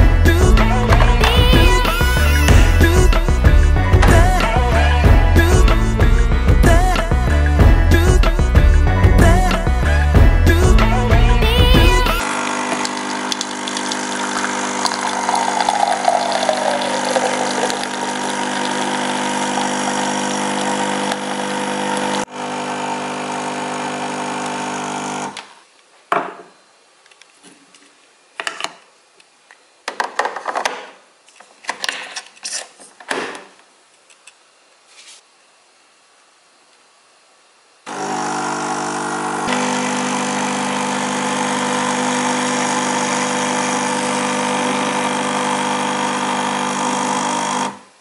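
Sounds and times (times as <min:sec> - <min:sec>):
coffee machine pump buzzing: 0:11.5 - 0:25.4, 0:37.9 - 0:47.9.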